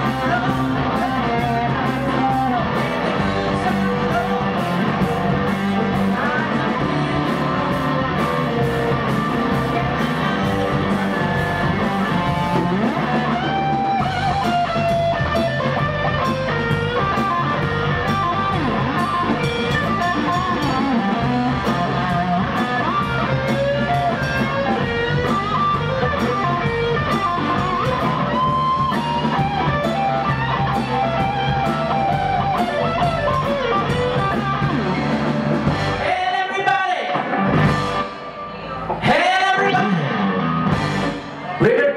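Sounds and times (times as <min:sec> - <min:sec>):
electric guitar bending notes: 0:00.0 - 0:36.0
blues-rock band playing: 0:00.0 - 0:41.9.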